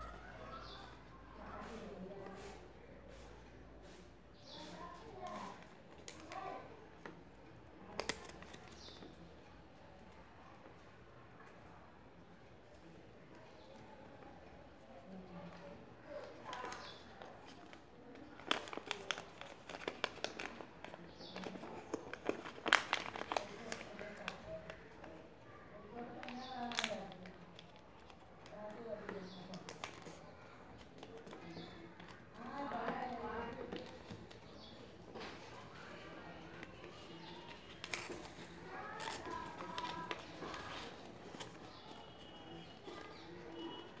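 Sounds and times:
paper folding and crinkling: 7.8s - 9.2s, 16.1s - 25.2s, 26.0s - 44.0s.

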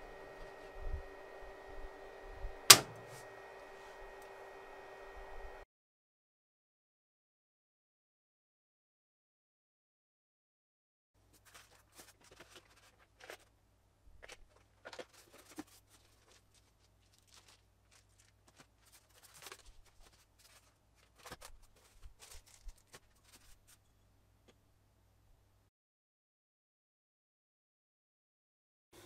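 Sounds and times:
plastic bags rustling: 11.4s - 13.5s, 14.2s - 23.8s.

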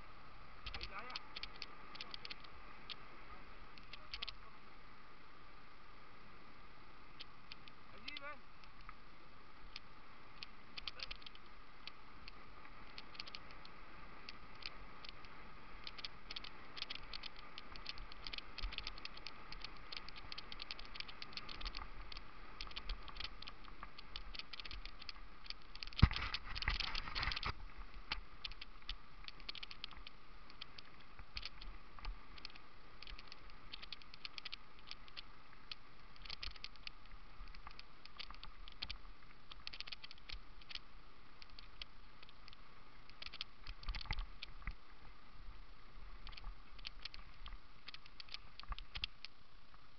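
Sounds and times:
faint steady whine: 0.0s - 49.9s
bike rattling and clicking: 0.6s - 3.0s, 9.7s - 40.8s, 41.4s - 44.7s, 46.2s - 49.4s.

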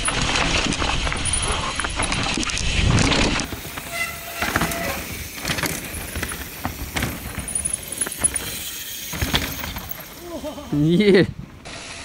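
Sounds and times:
chain and frame rattles: 0.0s - 10.4s
bike tyres crunching over rock: 0.0s - 10.6s
brake squeal: 3.5s - 10.3s.

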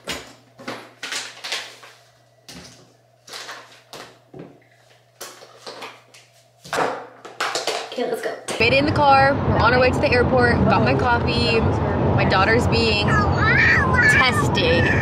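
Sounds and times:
low steady hum: 8.3s - 15.0s.

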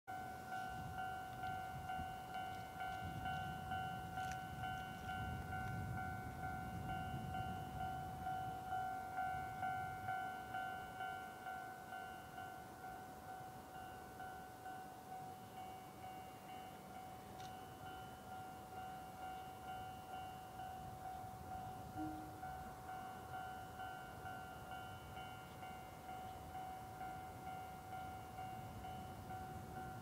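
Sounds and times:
level crossing warning bell: 0.1s - 30.0s.

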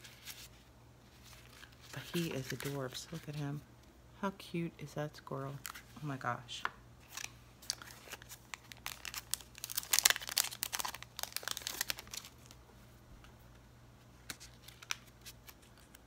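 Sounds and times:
plastic bag crinkling: 7.0s - 12.6s.

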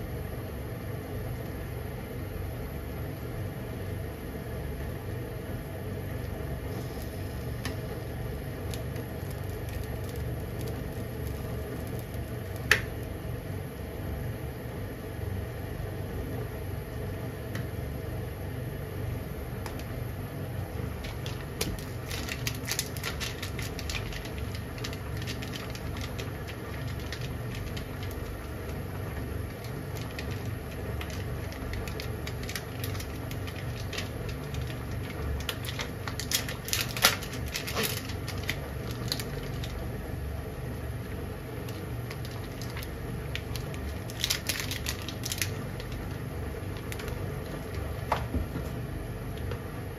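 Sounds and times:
steady low hum: 0.0s - 49.9s
bubbles crackling and popping: 8.6s - 12.8s.

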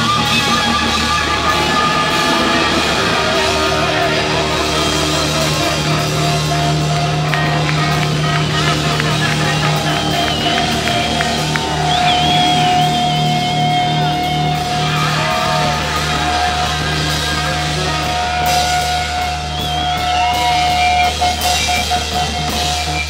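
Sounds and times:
long wavering guitar note: 0.0s - 9.0s
cymbal crashes: 0.0s - 22.8s
live rock band playing: 0.0s - 23.0s.

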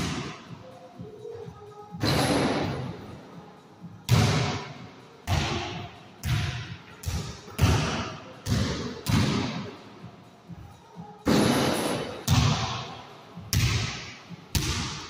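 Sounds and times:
basketball bouncing: 5.3s - 9.6s.

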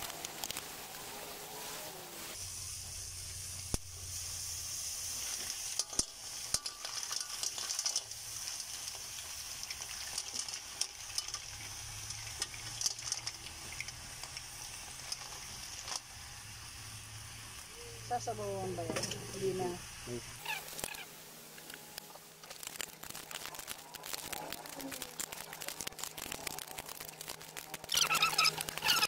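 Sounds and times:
wok sizzling: 0.0s - 29.0s
mussel shells clattering: 6.7s - 16.1s.

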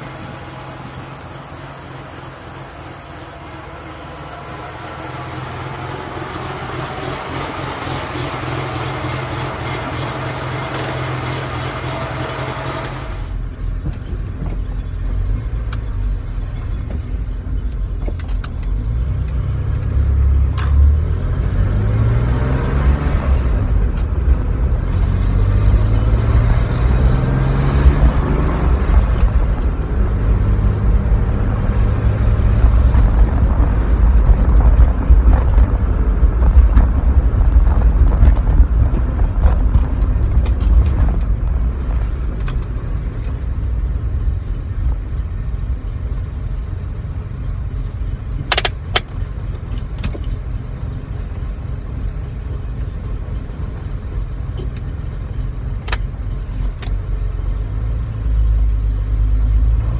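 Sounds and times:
car engine revving: 0.0s - 59.9s
road rumble: 0.0s - 59.9s
wind noise: 22.0s - 45.1s.

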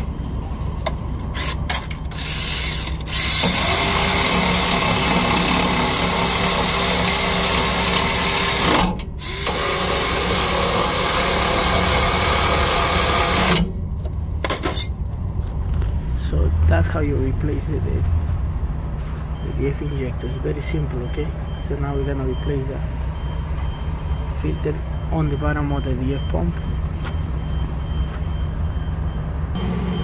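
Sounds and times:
handheld power tool running: 1.4s - 13.6s.

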